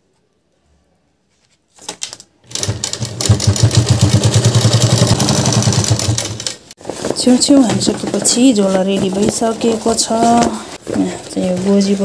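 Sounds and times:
sewing machine running: 0:02.5 - 0:06.7.

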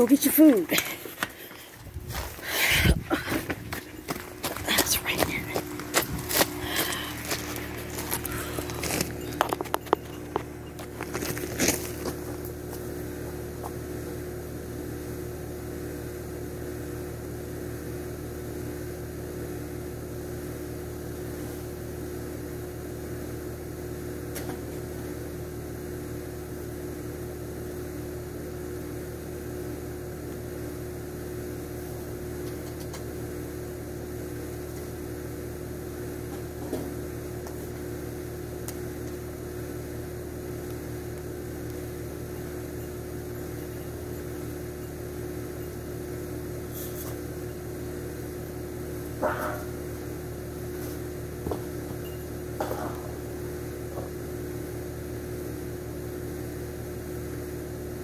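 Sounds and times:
motor humming: 0:00.0 - 0:13.7, 0:36.3 - 0:53.4.

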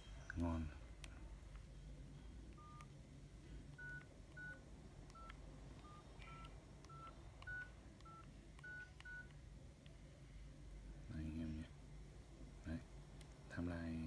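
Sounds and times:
phone keypad beeps: 0:02.6 - 0:02.9, 0:03.8 - 0:09.4.

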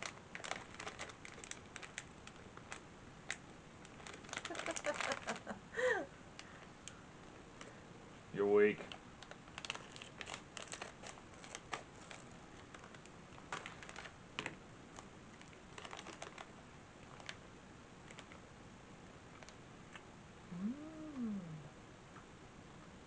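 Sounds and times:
plastic wrapper crinkling: 0:00.0 - 0:05.6, 0:08.8 - 0:17.4, 0:18.0 - 0:18.4.

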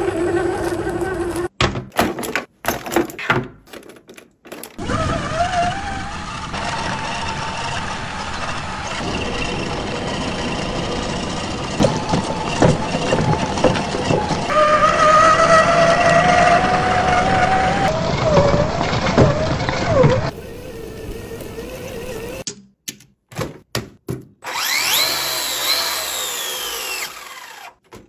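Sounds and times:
electric motor whining: 0:04.8 - 0:22.4, 0:24.5 - 0:27.8.

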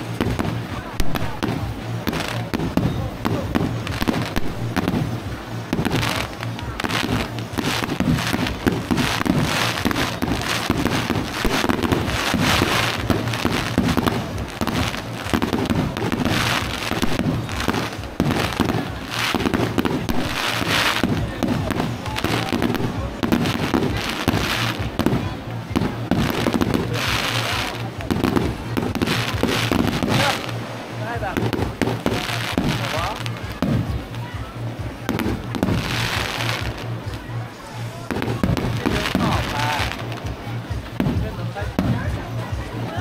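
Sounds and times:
fireworks bursting: 0:00.0 - 0:43.0.

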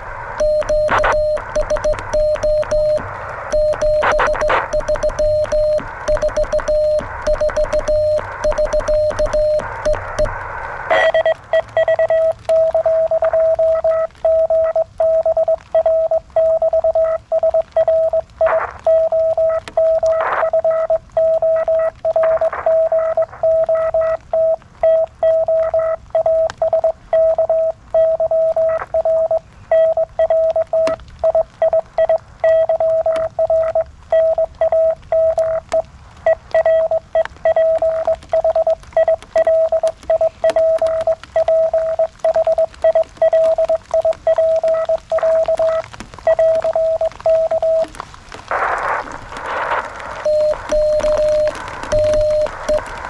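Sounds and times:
morse code beeping tone: 0:00.4 - 0:10.3, 0:10.9 - 0:47.9, 0:50.2 - 0:52.9
faint clicks: 0:34.7 - 0:53.0.

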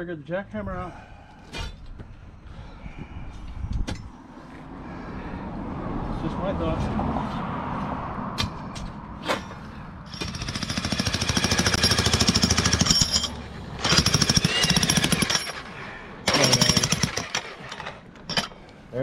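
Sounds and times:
jackhammer breaking concrete: 0:10.1 - 0:18.5.

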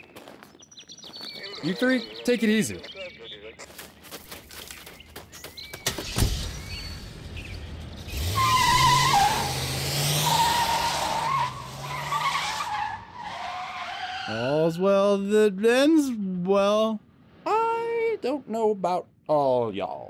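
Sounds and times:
tires screeching: 0:05.9 - 0:14.8
car engine running hard: 0:07.1 - 0:12.0.

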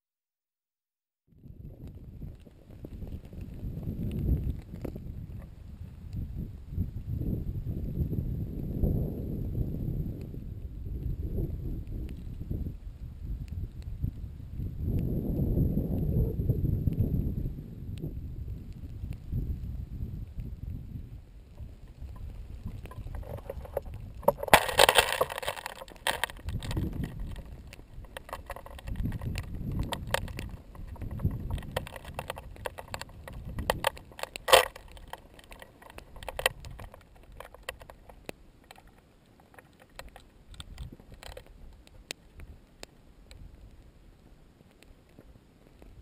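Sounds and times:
sharp clicks and crackles: 0:01.3 - 0:07.1, 0:10.2 - 0:17.3, 0:17.9 - 0:46.0
wind gusting on microphone: 0:01.3 - 0:38.8, 0:39.5 - 0:42.6
crunching and scraping: 0:21.4 - 0:43.8.

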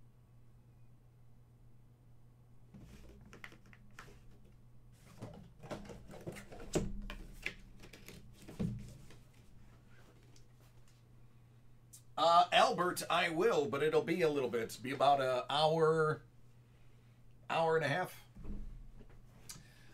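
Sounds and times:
packaging rustling and clicking: 0:02.8 - 0:09.4.

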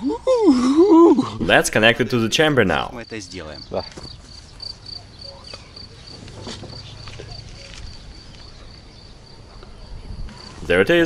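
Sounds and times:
cricket chirping: 0:02.9 - 0:11.0.

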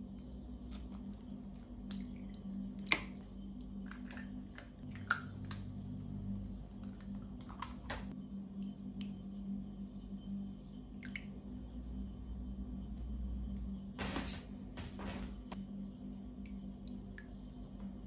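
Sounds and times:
low hum: 0:00.0 - 0:18.0
eggs cracking: 0:00.6 - 0:08.1.

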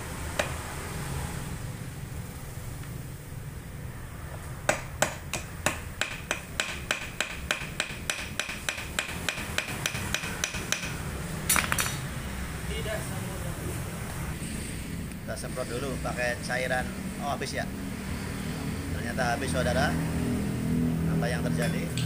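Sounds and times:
hammer ringing on metal: 0:04.7 - 0:11.0
metal knocks: 0:04.7 - 0:12.0.

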